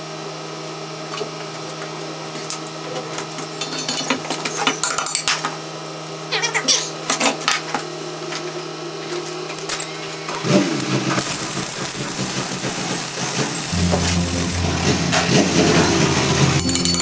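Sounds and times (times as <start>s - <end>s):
machine hum with hiss: 8.8s - 17.0s
deeper hum: 11.2s - 17.0s.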